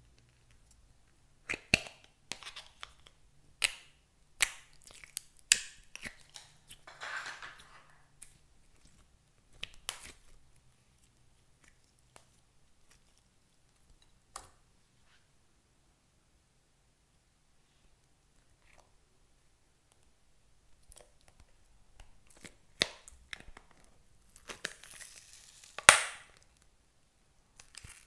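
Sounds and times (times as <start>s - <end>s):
slime squishing: 4.4s - 6.8s.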